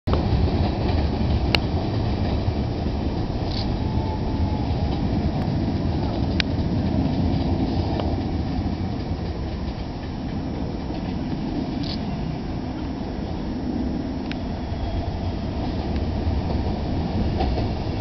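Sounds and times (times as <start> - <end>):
train wheels rumbling on rail: 0.1 - 18.0.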